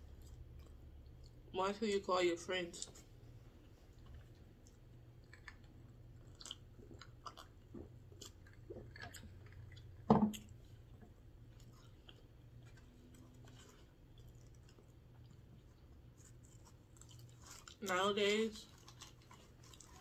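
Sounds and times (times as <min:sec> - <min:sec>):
person chewing food: 0:00.0 - 0:01.5, 0:02.9 - 0:17.9, 0:18.6 - 0:20.0
low steady hum: 0:00.0 - 0:20.0
knock: 0:10.1 - 0:10.3.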